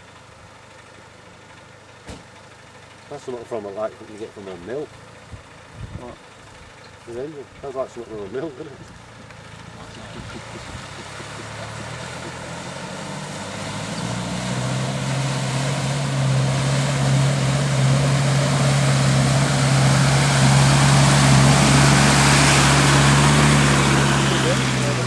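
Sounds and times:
vehicle engine droning: 0.0s - 25.0s
water surging and splashing: 11.2s - 25.0s.

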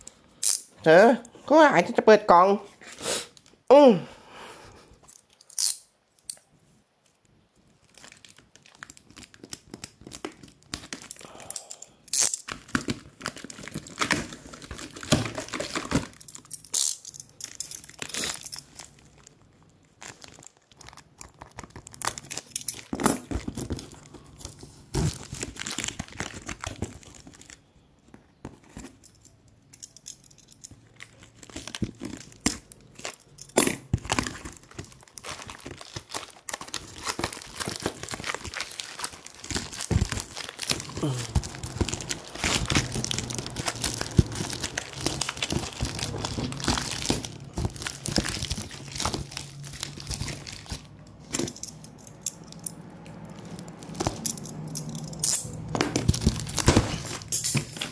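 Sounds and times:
blade slitting tape and plastic: 12.1s - 17.0s.

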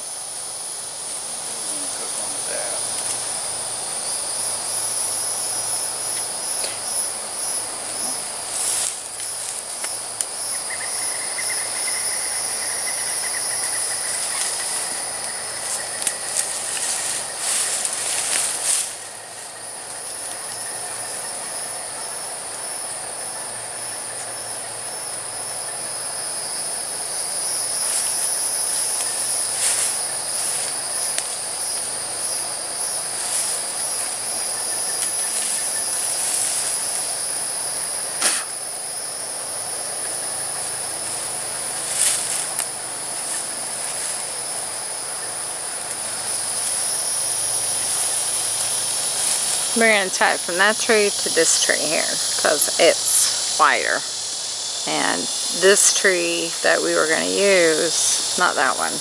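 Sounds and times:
insects droning: 0.0s - 59.0s.

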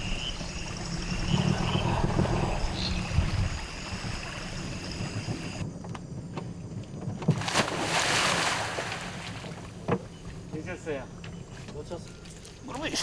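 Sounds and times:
frogs calling: 0.0s - 6.0s, 8.7s - 13.0s
low rumble: 0.0s - 7.2s
insects calling: 0.0s - 13.0s
water splashing in reeds: 7.3s - 9.6s.

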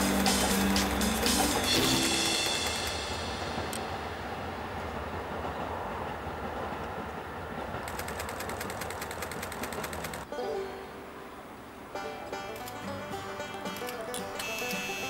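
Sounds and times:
music: 0.0s - 3.8s, 11.9s - 15.0s
fast even ticking: 0.0s - 3.9s, 7.8s - 10.3s
diesel train rumbling on viaduct: 0.0s - 14.0s.

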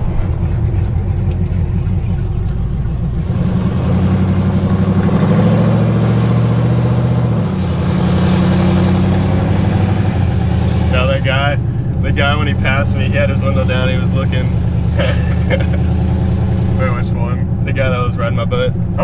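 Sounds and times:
engine exhaust accelerating: 0.0s - 19.0s.

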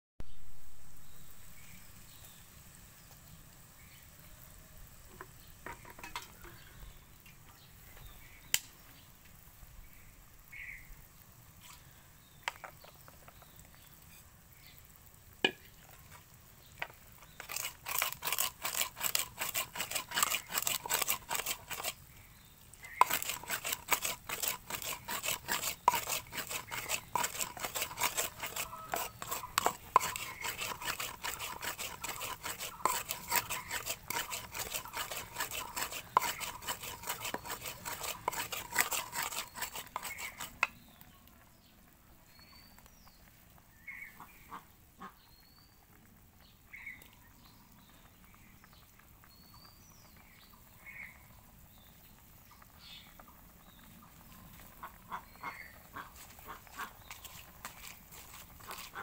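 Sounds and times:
spice seeds ground in clay bowl: 15.8s - 40.9s, 55.3s - 59.0s.

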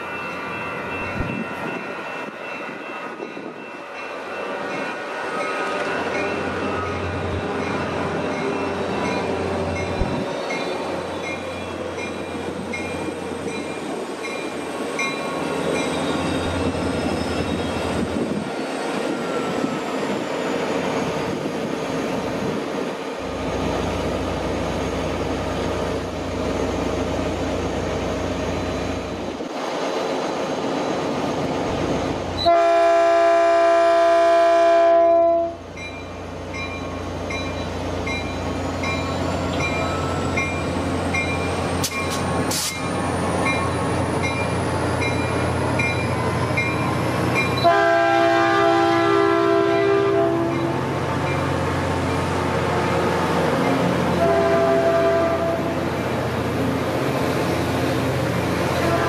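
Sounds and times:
diesel locomotive rumbling: 0.0s - 59.0s
locomotive horn: 32.4s - 35.6s, 47.6s - 50.9s, 54.1s - 55.9s, 58.7s - 59.0s.

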